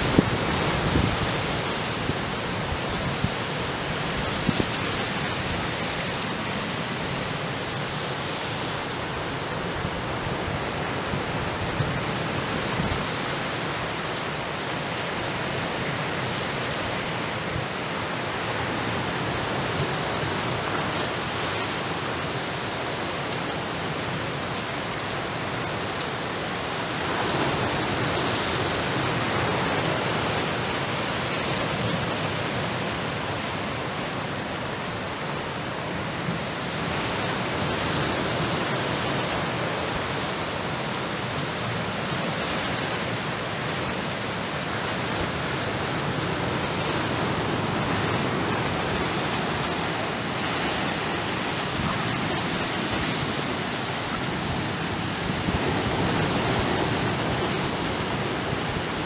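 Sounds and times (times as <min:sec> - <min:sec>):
ocean waves breaking: 0:00.0 - 0:59.0.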